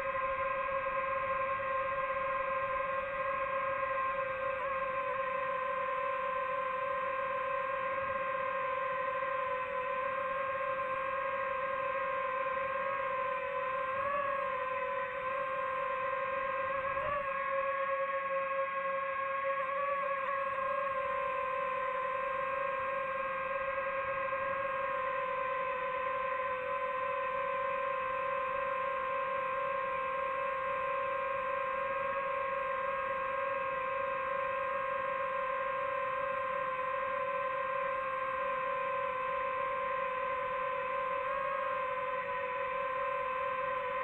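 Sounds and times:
drone propellers whining: 0:19.0 - 0:30.1.

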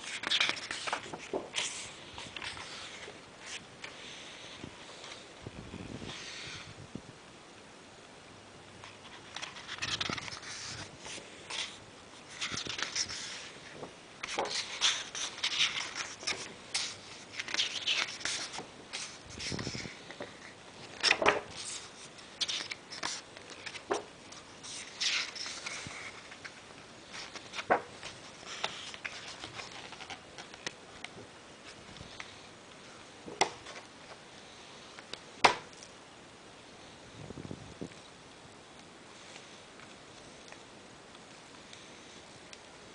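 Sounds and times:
book pages rustling: 0:00.0 - 0:04.0, 0:08.8 - 0:34.2.

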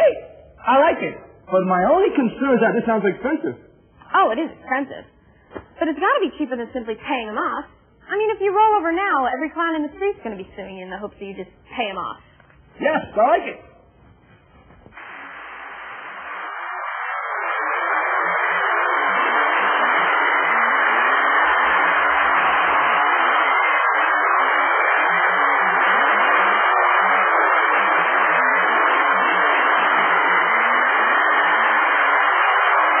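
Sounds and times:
loud steady hiss: 0:14.8 - 0:33.0.

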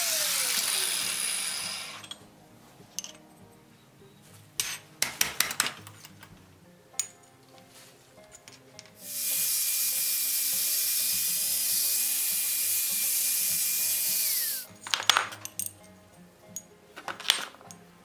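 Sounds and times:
angle grinder grinding iron: 0:00.0 - 0:02.2, 0:09.0 - 0:14.7
iron parts clinking: 0:01.8 - 0:02.3, 0:02.9 - 0:03.4, 0:04.6 - 0:06.3, 0:07.0 - 0:07.3, 0:08.2 - 0:09.0, 0:14.6 - 0:17.8.

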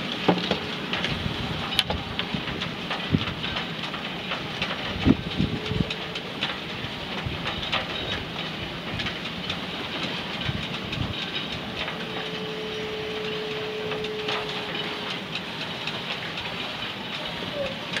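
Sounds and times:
wind on microphone: 0:04.8 - 0:06.2.

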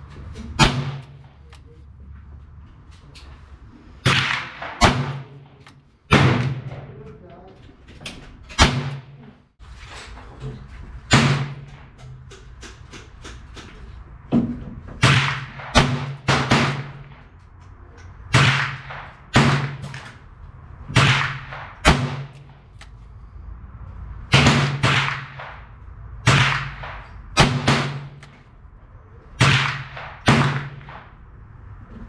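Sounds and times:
revolver gunshots: 0:00.6 - 0:01.4, 0:04.0 - 0:06.9, 0:08.6 - 0:09.2, 0:11.1 - 0:12.0, 0:15.0 - 0:17.3, 0:18.3 - 0:20.2, 0:20.9 - 0:22.8, 0:24.3 - 0:28.4, 0:29.3 - 0:31.2.

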